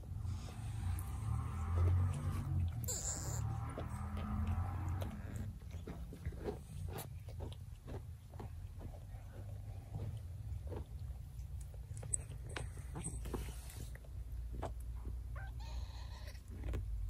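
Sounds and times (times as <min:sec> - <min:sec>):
cat purring: 0:00.0 - 0:07.5.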